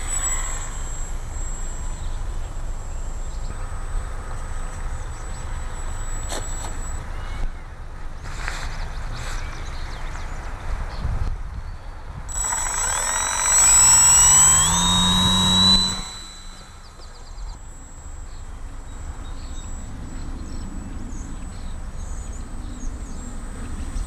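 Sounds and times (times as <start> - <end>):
model plane motor whining: 0.0 - 7.0, 12.3 - 24.0.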